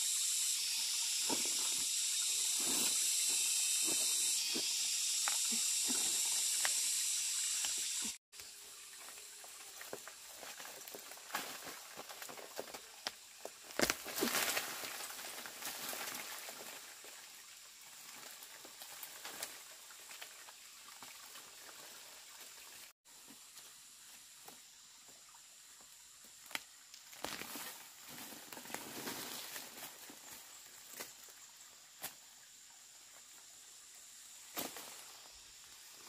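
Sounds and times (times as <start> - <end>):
soil pattering down: 8.4 - 16.7
leaves and stems rustling: 10.2 - 16.7, 27.0 - 31.1.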